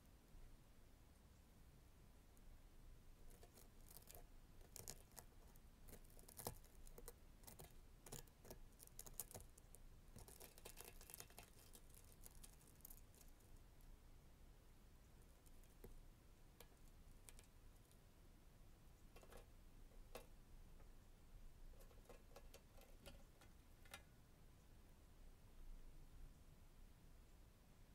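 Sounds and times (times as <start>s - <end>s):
metal pick scraping melted plastic: 10.2s - 13.2s, 19.1s - 20.3s, 21.8s - 24.1s.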